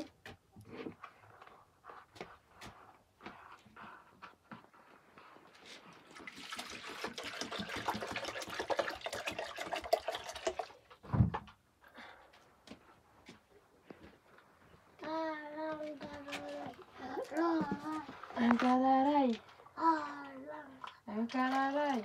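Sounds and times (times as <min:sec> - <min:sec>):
water pouring into plastic jug: 0:05.8 - 0:11.1, 0:16.0 - 0:22.0.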